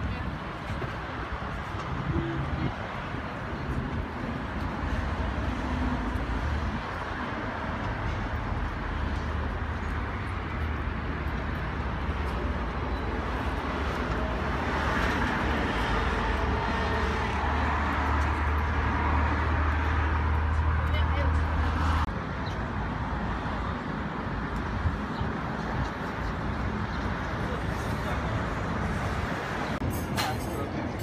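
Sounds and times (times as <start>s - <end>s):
low rumble of road traffic: 0.0s - 31.0s.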